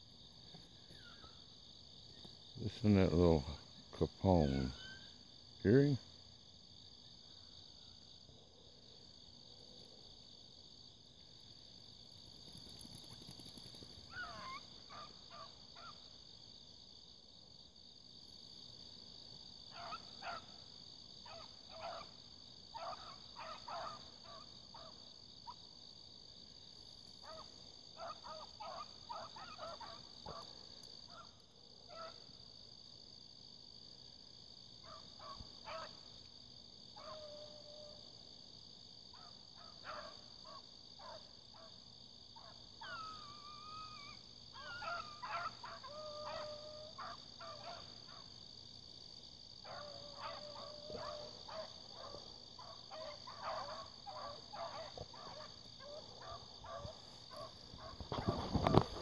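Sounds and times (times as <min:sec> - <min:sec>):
crickets and insects chorus: 0:00.0 - 0:59.0
distant hounds barking: 0:14.1 - 0:16.0, 0:19.7 - 0:25.6, 0:27.2 - 0:32.3, 0:34.8 - 0:36.1, 0:36.9 - 0:38.1, 0:39.1 - 0:48.5, 0:49.6 - 0:59.0.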